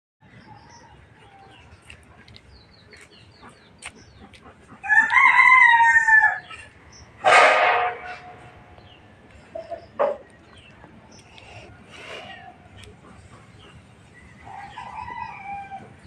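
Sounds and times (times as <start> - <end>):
small birds chirping: 0.2 - 5.2, 6.3 - 7.2, 8.1 - 16.0
rooster crowing: 4.8 - 6.5, 14.4 - 16.0.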